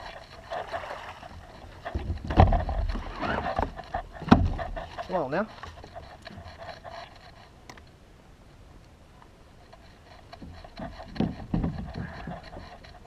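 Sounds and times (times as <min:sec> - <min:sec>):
dull thumps and knocks: 0:00.6 - 0:05.1, 0:10.3 - 0:13.0.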